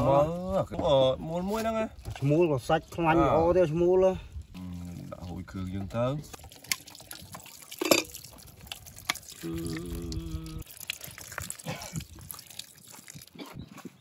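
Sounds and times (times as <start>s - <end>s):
liquid pouring and splashing: 4.2s - 13.9s.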